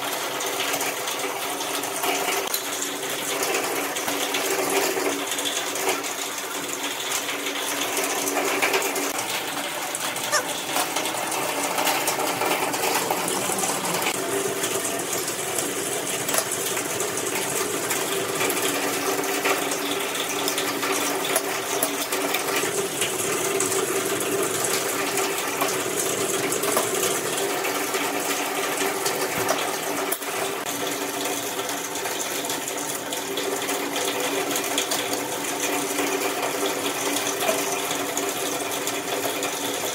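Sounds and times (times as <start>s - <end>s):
steady mechanical hum: 9.0s - 30.6s.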